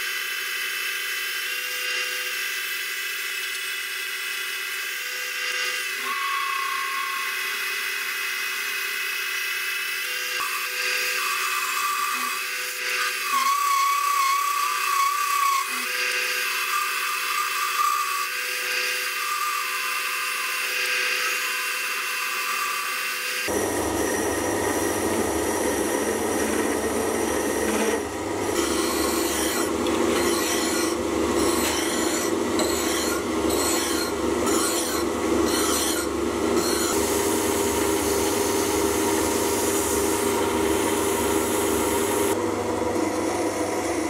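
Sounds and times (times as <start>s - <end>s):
metal lathe whine: 0.1s - 44.0s
high squeal of cutting tool: 4.8s - 40.0s.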